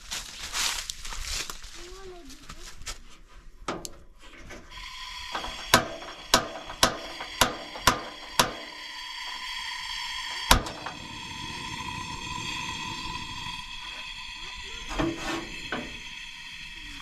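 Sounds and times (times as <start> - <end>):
steady background tone: 4.1 - 17.0
sharp knocks: 5.4 - 8.8.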